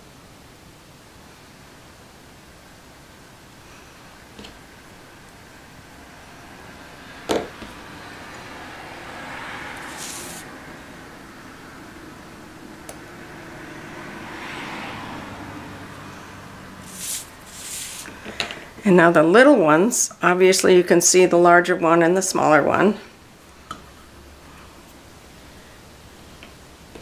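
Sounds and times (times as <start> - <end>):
card stock rustling on mat: 9.8 - 10.4, 16.8 - 18.2.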